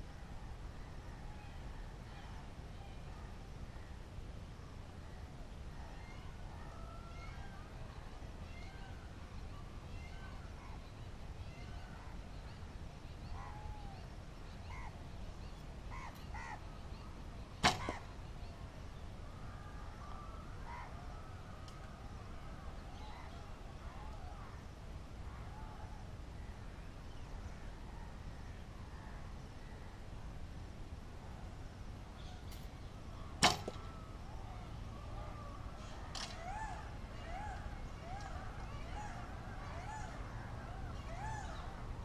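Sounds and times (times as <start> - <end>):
bow string snap: 17.6 - 18.0, 33.4 - 33.8.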